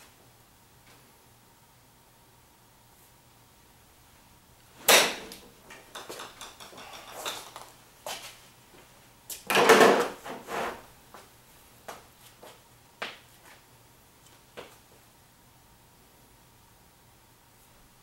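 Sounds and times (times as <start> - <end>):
golf club striking ball: 4.8 - 5.4.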